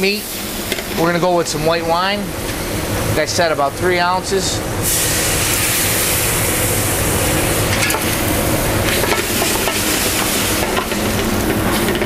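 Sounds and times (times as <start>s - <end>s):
wine sizzling in a hot pan: 4.8s - 12.0s.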